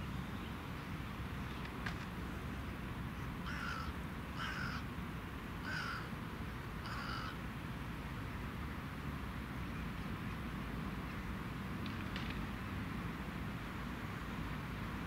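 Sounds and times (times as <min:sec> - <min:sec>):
crow cawing: 0:03.4 - 0:04.8, 0:05.6 - 0:06.1, 0:06.8 - 0:07.4.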